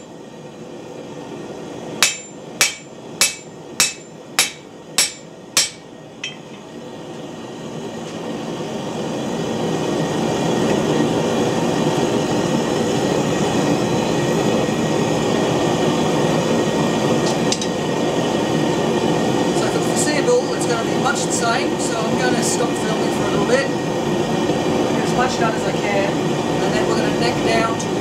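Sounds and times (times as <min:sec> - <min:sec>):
hammer blows on hot steel: 0:02.0 - 0:06.6.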